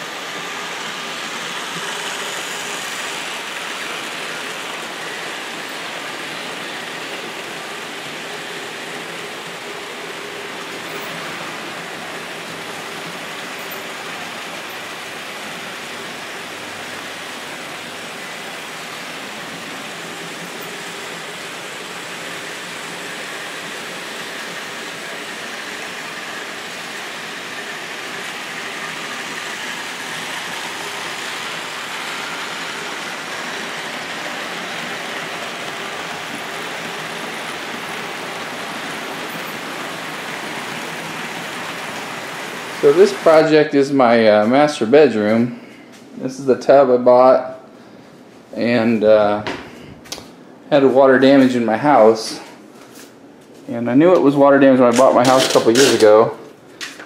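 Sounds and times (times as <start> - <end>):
electric motors: 0.0 - 43.7
model train wheels rolling on track: 0.0 - 45.5, 53.9 - 57.0.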